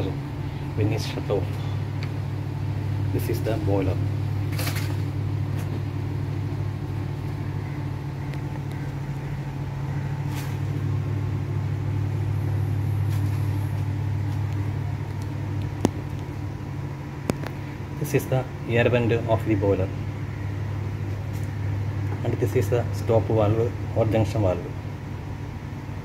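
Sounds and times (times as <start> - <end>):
low mechanical hum: 0.0 - 26.0.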